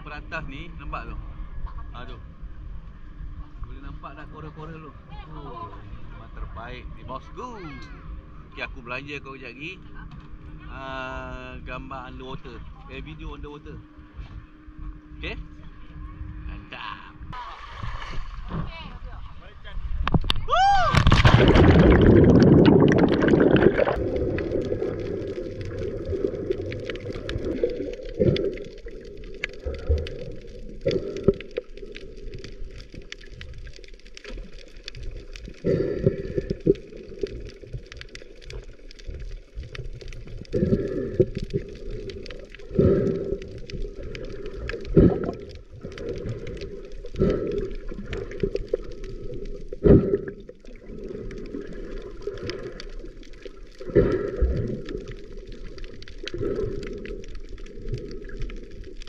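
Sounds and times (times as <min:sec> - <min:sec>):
underwater water gurgling: 0:00.0 - 0:59.0
water gushes: 0:20.1 - 0:59.0.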